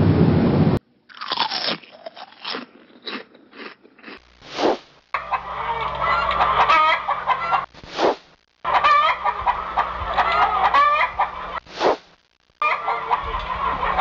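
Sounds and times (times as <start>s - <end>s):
chickens clucking: 5.1s - 12.0s, 12.6s - 14.0s.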